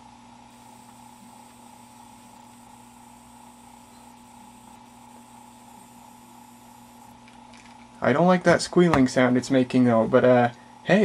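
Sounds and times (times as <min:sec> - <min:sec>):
fluorescent ballast squealing: 0:00.6 - 0:07.2.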